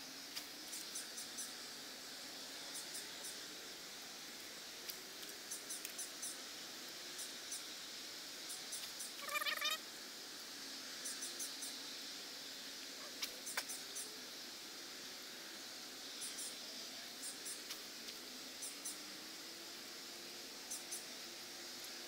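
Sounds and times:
faint high ticks: 4.8 - 6.4, 8.6 - 9.6, 13.2 - 14.1.

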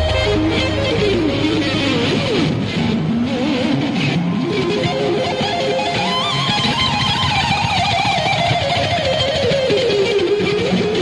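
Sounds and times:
band playing: 0.0 - 3.2
distorted electric guitar solo: 0.0 - 11.0.

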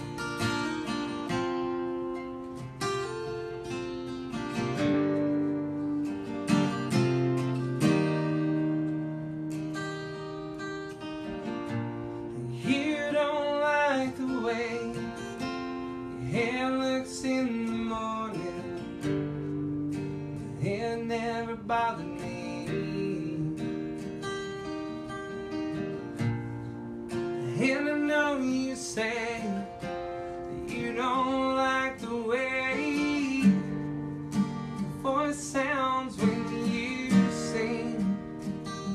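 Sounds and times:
acoustic guitar strumming: 0.0 - 38.9
person singing: 12.3 - 19.4, 20.4 - 24.0, 27.4 - 34.0, 34.7 - 38.9.

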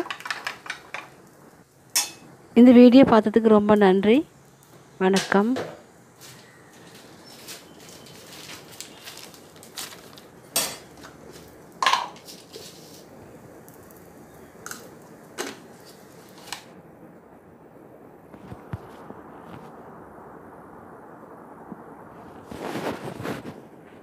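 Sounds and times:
faint steady hiss: 0.0 - 24.0
utensils clinking against dishes: 10.6 - 11.0.

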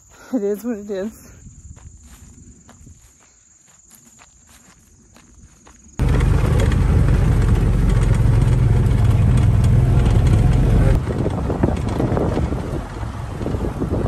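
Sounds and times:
faint insects: 0.0 - 6.0
wind noise: 1.1 - 3.2, 5.3 - 14.0
vehicle engine running: 6.0 - 14.0.

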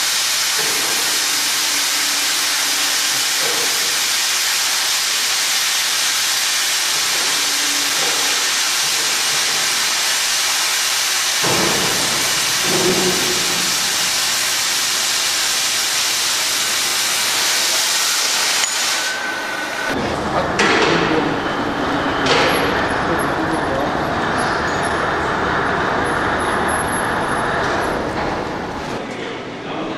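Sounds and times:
cutting torch hissing through steel: 0.0 - 20.0.

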